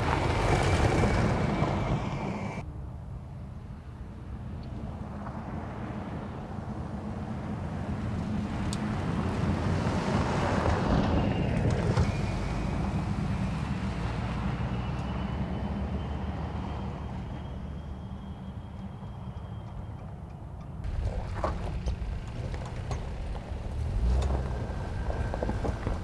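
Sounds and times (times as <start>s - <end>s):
pickup truck driving past: 0.0s - 2.6s, 4.9s - 19.6s, 20.8s - 26.0s
sharp gravel ticks: 20.8s - 26.0s.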